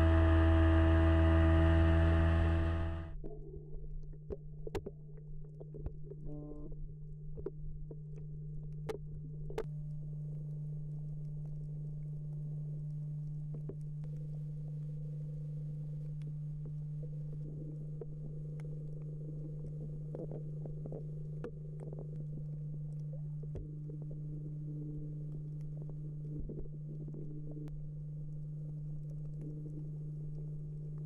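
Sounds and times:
deep rumble: 0.0 - 3.2
underwater low hum: 0.0 - 31.0
faint sharp clicks: 11.2 - 14.9, 25.2 - 31.0.

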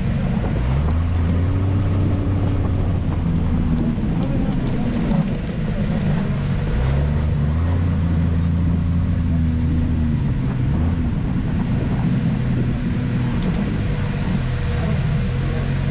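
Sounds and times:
race car engine running: 0.0 - 15.9.

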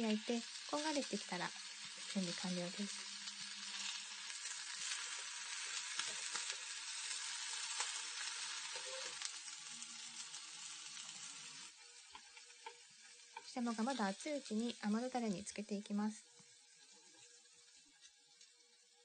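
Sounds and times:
fish sizzling in a frying pan: 0.0 - 19.0
small crackles of frying oil: 0.0 - 19.0.

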